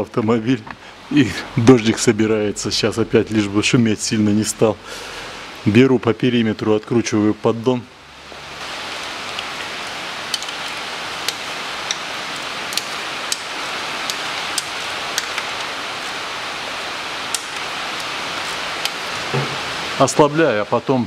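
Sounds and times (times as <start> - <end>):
heavy rain hiss: 0.0 - 21.0.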